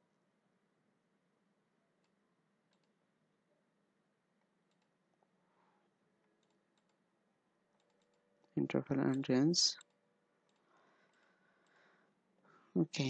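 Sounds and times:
faint computer mouse clicks: 2.0 - 3.0.

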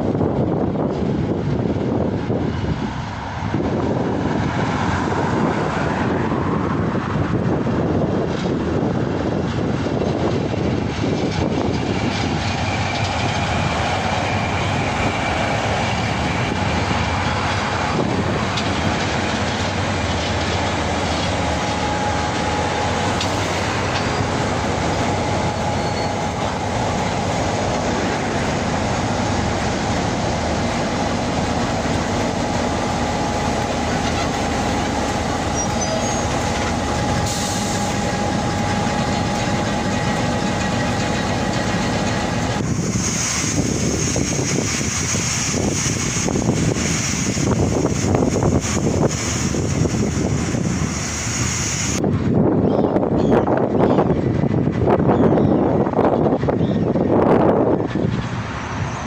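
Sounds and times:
diesel locomotive engines under load: 0.0 - 59.0
wheels rumbling on rail: 0.0 - 59.0
steady whine: 11.3 - 52.0.

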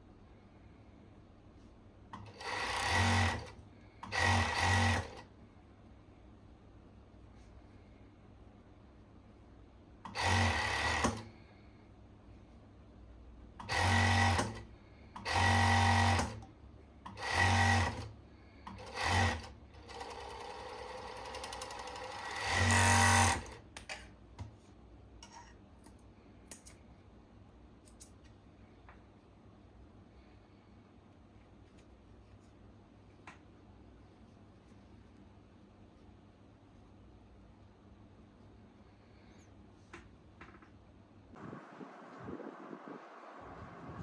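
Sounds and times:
overlock sewing machine stitching: 2.2 - 5.3, 10.1 - 11.3, 13.6 - 16.4, 17.1 - 18.1, 18.7 - 23.6.

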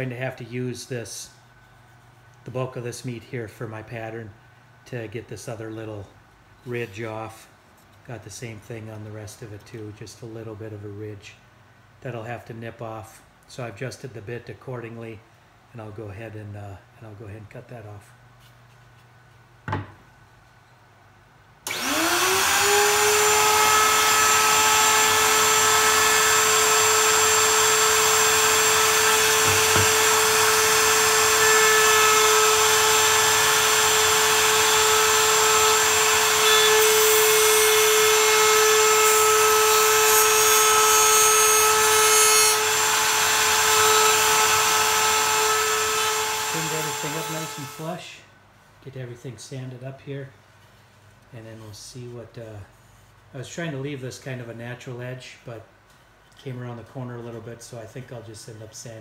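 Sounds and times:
router whine: 21.7 - 47.9
router bit cutting wood: 21.7 - 48.0.

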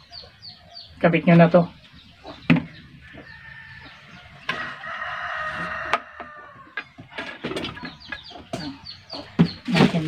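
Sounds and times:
rooster crowing: 3.3 - 6.8.

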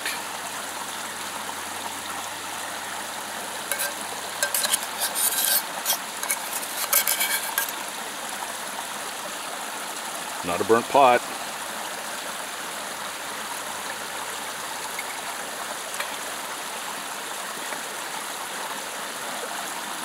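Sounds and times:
metal spoon scraping a pot: 0.0 - 0.2, 3.7 - 7.8, 14.9 - 15.3, 16.0 - 16.2.

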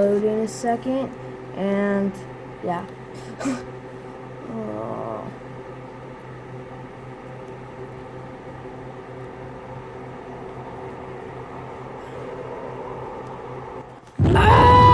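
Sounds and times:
low mechanical hum: 0.0 - 14.9.

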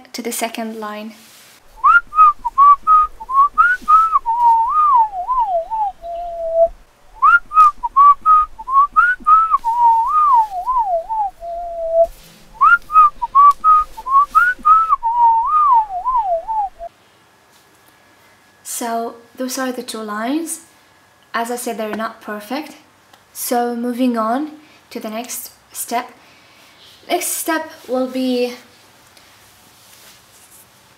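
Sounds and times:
whistled tune: 1.8 - 16.9.

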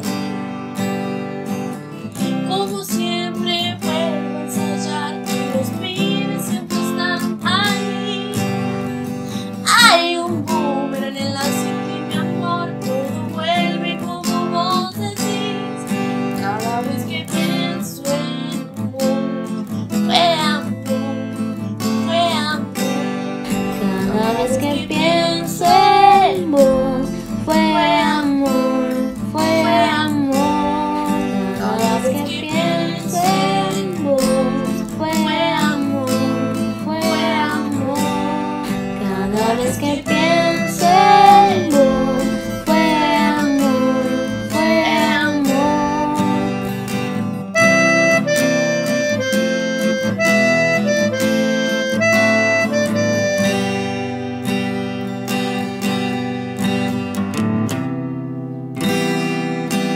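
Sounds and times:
acoustic guitar: 0.0 - 59.9
girls singing pop ballad: 2.3 - 8.7, 9.5 - 19.4, 20.0 - 21.1, 23.5 - 46.8
reedy lead melody: 22.6 - 54.8.

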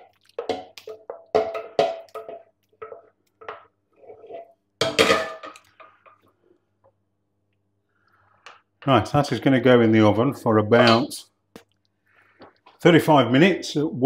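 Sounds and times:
wooden spoon knocking on saucepan: 0.4 - 3.7.

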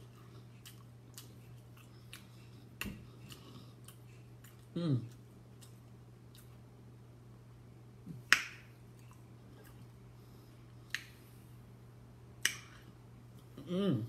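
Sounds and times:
low steady hum: 0.0 - 14.0
mouth smacks while eating: 0.6 - 6.6, 10.8 - 11.3, 12.4 - 13.5.

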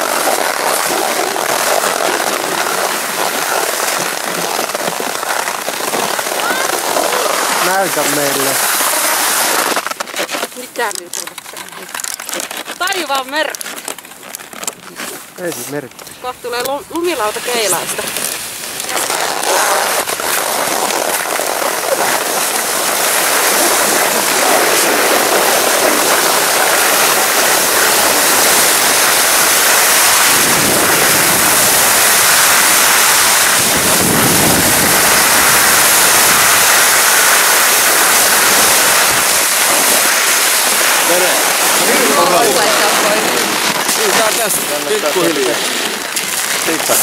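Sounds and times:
skis hissing on snow: 0.0 - 10.9, 15.0 - 47.0
wind buffeting microphone: 22.9 - 44.2.

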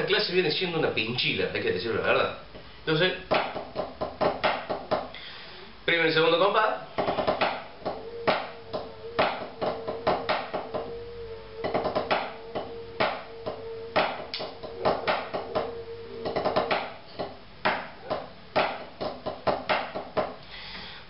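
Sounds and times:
drumsticks on practice pad: 7.0 - 11.0, 11.6 - 20.4
steady ringing tone: 7.2 - 18.2.

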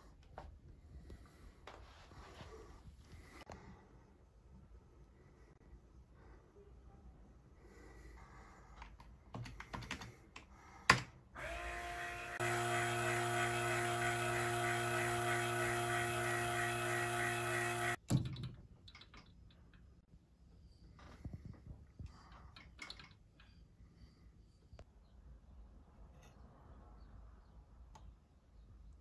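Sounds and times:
electric pump humming and whining: 11.4 - 18.0.

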